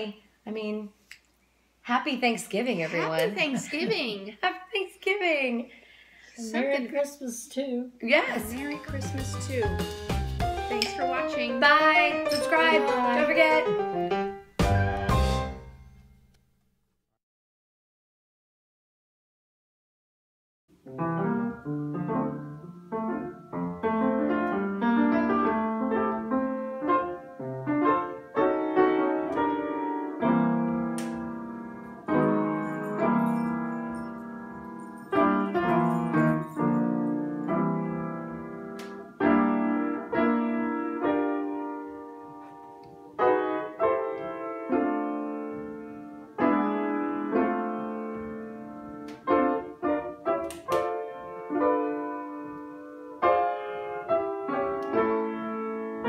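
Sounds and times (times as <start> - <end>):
piano chords: 8.3 - 16.2, 20.8 - 56.0.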